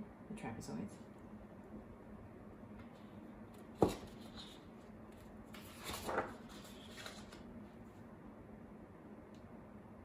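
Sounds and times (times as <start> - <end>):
paper rustling and sliding: 3.8 - 7.5.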